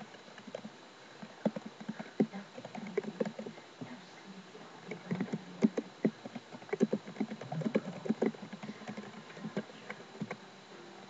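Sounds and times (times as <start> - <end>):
keyboard typing clicks: 1.4 - 3.5, 4.9 - 10.4.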